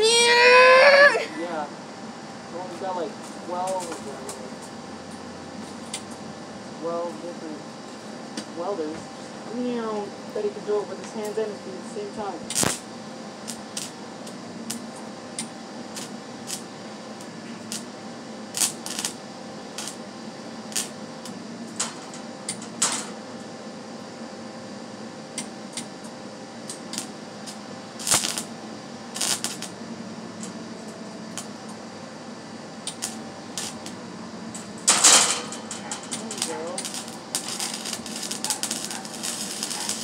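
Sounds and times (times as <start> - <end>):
steady low hum: 0.0 - 40.0
welding gun clicks and taps: 12.5 - 12.8, 19.8 - 20.0, 26.7 - 28.5, 29.2 - 29.7, 32.8 - 34.0, 34.6 - 40.0.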